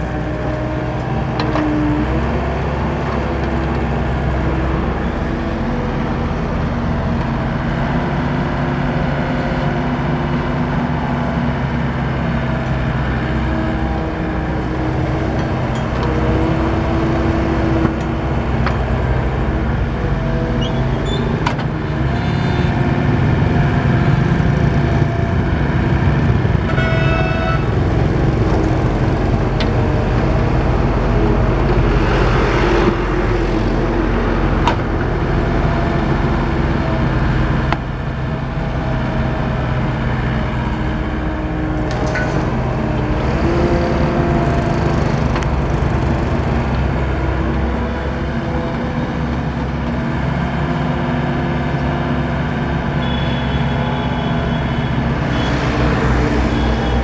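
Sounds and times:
diesel engine under load: 0.0 - 57.0
hydraulic whine: 41.4 - 50.0.

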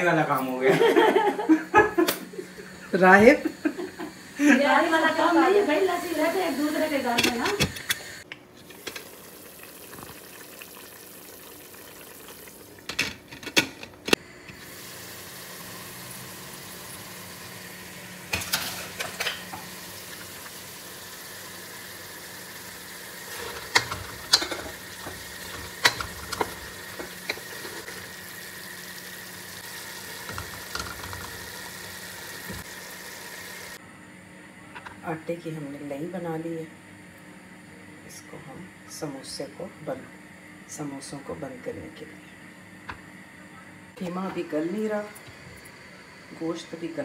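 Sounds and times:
meat sizzling in a pot: 0.9 - 13.0, 14.2 - 33.8.

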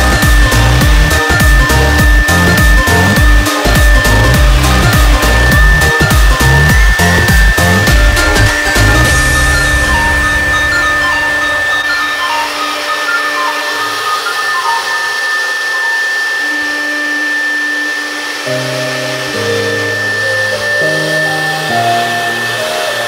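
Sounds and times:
bass line: 0.0 - 13.8
electronic music: 0.0 - 23.0
wood router spindle whine: 0.0 - 23.0.

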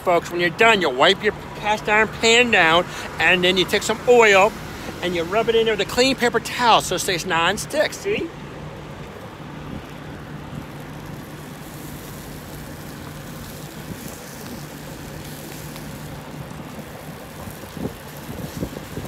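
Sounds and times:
outdoor noise: 0.0 - 19.0
truck engine idling: 0.0 - 19.0.

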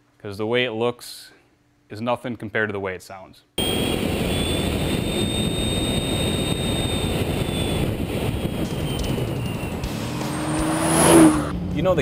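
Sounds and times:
high turbo whistle: 3.6 - 11.5
diesel engine running: 3.6 - 11.7
road noise: 3.6 - 11.9.

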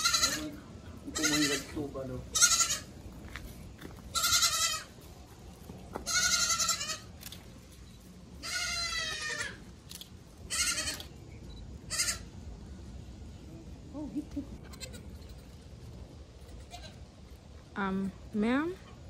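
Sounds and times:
goats bleating: 0.0 - 2.9, 4.1 - 5.0, 6.0 - 7.1, 8.4 - 9.6, 10.5 - 11.0, 14.6 - 15.6, 16.5 - 17.0.

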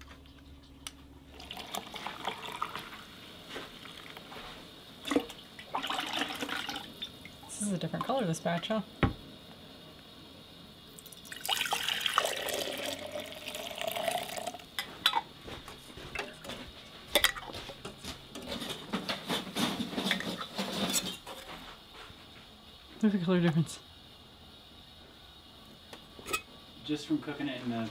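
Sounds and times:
broth pouring into a glass jar: 1.3 - 3.1, 5.6 - 6.9, 11.0 - 14.6
metal lids clinking: 26.2 - 26.5.

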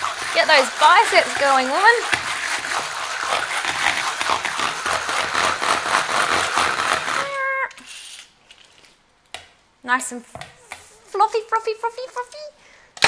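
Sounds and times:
egg beater whirring in bowl: 0.0 - 7.4.

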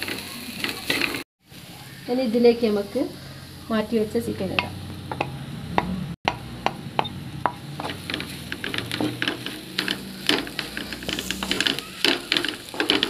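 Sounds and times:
light sizzle: 0.0 - 5.2, 6.3 - 13.0
spatula scraping metal pan: 7.5 - 13.0.

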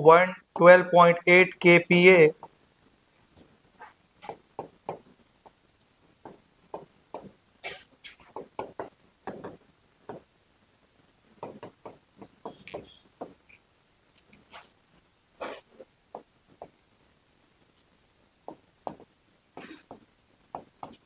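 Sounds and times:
writing taps and scrapes on board: 3.8 - 5.6, 8.2 - 10.3, 11.4 - 13.4, 18.5 - 21.0.

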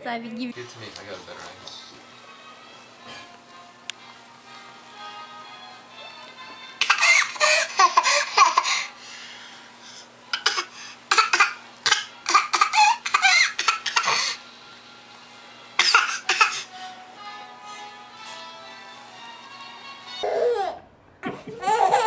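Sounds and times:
quiet background music: 0.0 - 22.0
baby laughing: 6.8 - 8.9, 10.4 - 14.4, 20.2 - 22.0.

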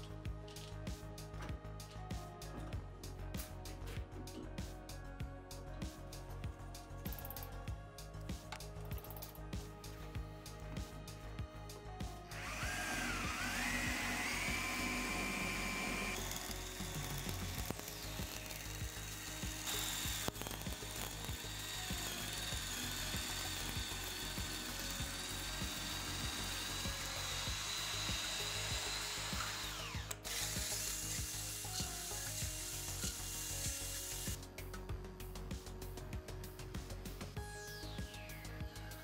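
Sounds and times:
drill motor whining: 12.3 - 34.4.

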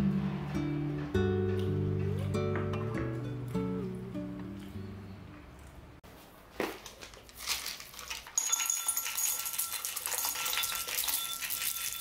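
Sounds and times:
nuts rattling into ceramic bowl: 7.6 - 12.0.

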